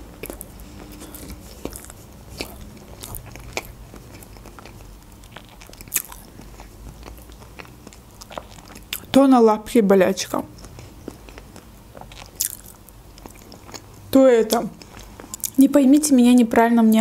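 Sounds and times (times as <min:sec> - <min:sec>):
person chewing food: 0:00.0 - 0:09.2, 0:10.2 - 0:15.6.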